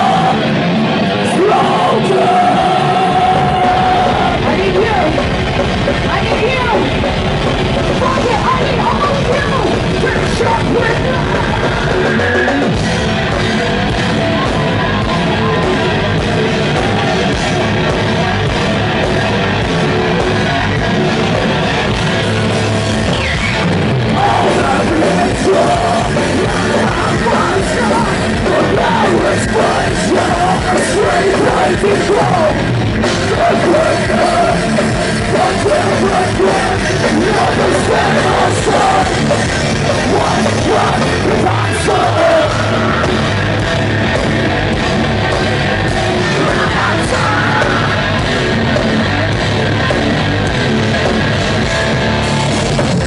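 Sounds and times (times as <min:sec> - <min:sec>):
heavy metal band playing: 0:00.0 - 0:53.0
woman yelling and singing: 0:01.7 - 0:05.2, 0:06.0 - 0:07.0, 0:07.9 - 0:12.0.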